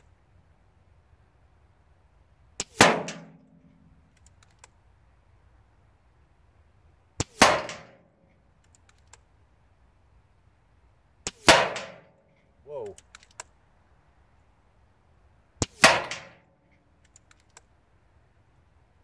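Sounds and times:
air rifle shots: 2.6 - 3.8, 7.2 - 8.1, 11.2 - 12.2, 15.6 - 16.5
light clicks: 3.6 - 4.8, 8.2 - 9.3, 12.3 - 13.6, 16.7 - 17.8.

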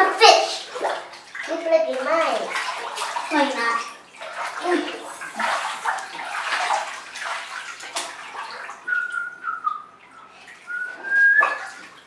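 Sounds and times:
bathwater splashing: 0.0 - 12.0
high whistle-like tone: 10.7 - 11.6.

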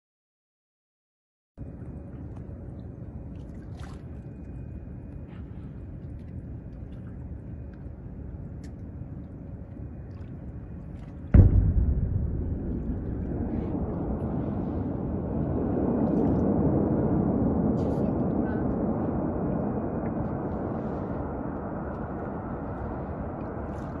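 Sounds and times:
low background rumble: 1.6 - 24.0
distant explosion boom: 11.3 - 16.7.

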